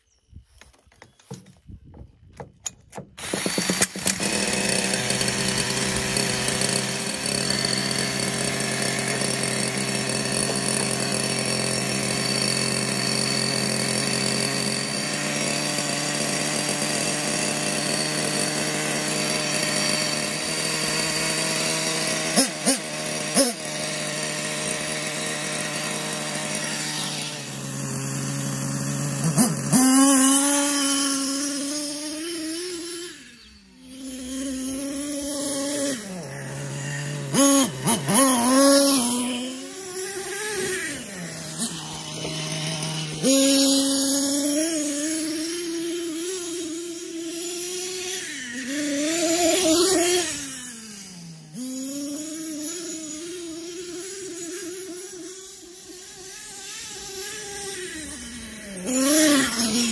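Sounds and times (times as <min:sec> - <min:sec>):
cordless drill starter: 0:00.4 - 0:32.0, 0:33.1 - 0:44.5
small glow engine buzzing: 0:02.6 - 0:59.9.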